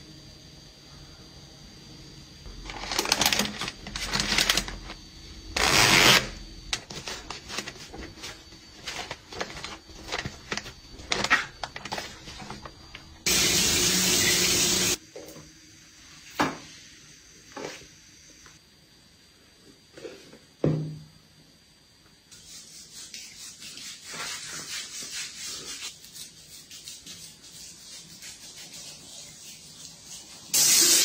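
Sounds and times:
running water hissing: 2.4s - 15.0s, 22.4s - 31.0s
plastic pack crinkling: 2.6s - 5.0s, 5.6s - 12.8s
water splashing from a tap: 13.2s - 15.0s.

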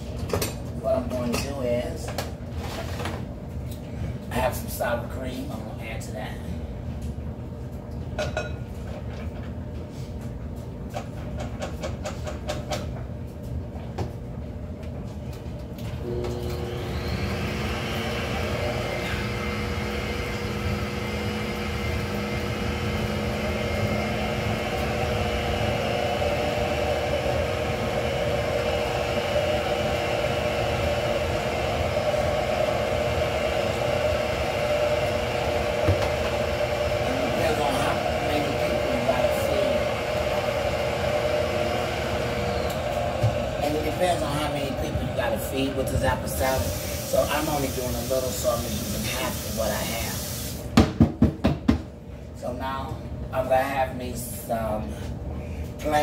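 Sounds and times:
stand mixer motor humming: 16.0s - 50.7s.

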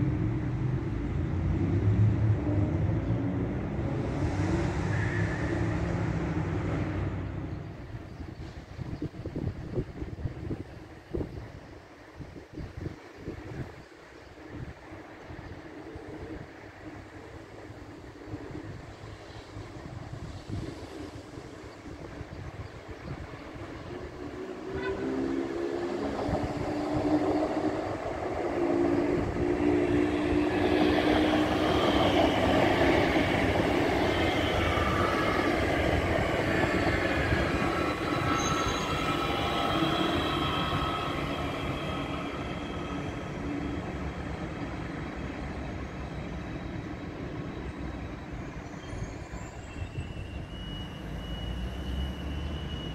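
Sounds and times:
train electric hum: 0.0s - 52.9s
train wheels rushing on rails: 16.4s - 52.9s.

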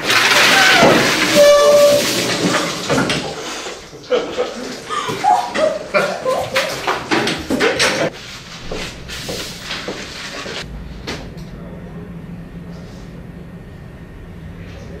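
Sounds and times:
sharp knocks and clatter: 0.0s - 3.4s.

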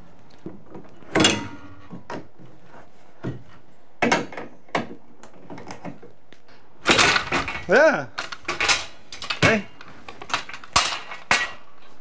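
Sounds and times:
metal gate clanking and knocking: 1.1s - 2.2s, 6.8s - 11.7s.

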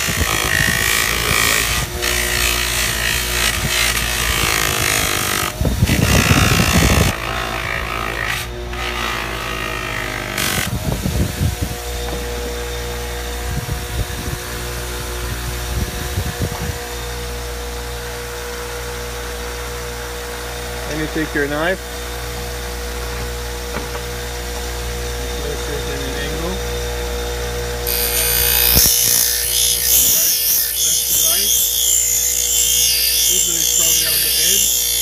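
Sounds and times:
electric motor humming: 0.0s - 35.0s
compound rubbing on spinning wheel: 27.9s - 35.0s.

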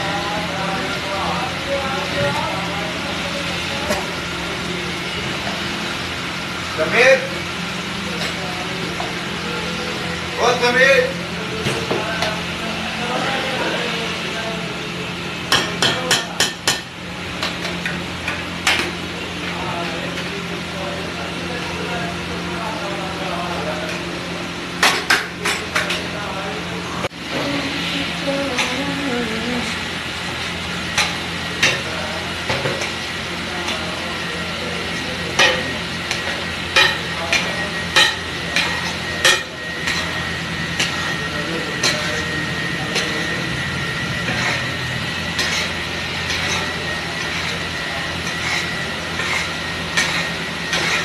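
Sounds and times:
steady low hum: 0.0s - 51.0s
frying sizzle: 29.8s - 51.0s
metal spatula clanking on griddle: 35.3s - 40.1s
metal spatula scraping griddle: 44.3s - 51.0s.

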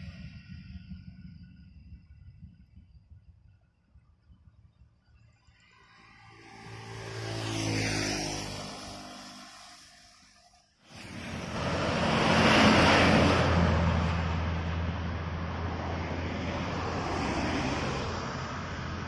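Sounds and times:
low engine hum: 0.0s - 19.0s
bus passing close: 5.6s - 19.0s.

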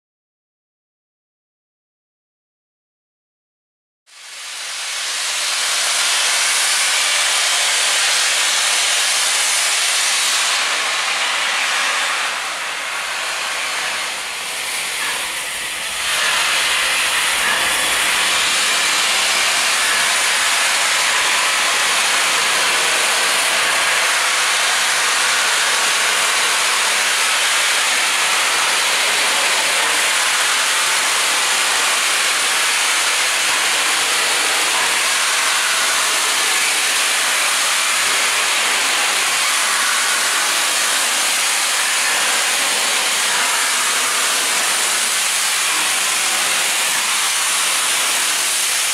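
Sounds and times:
steam locomotive hissing: 4.2s - 48.9s.

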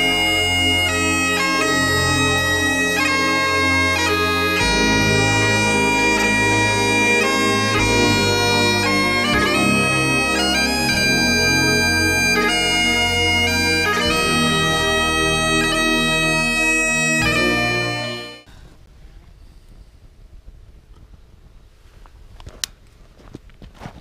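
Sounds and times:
bagpipe music: 0.0s - 18.5s.

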